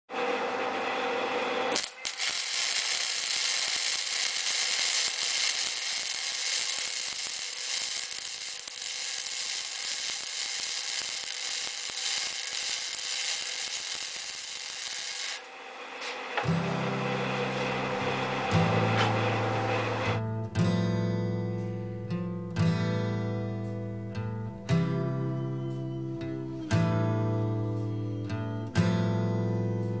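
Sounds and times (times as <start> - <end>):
welding arc crackling: 0.7 - 20.2.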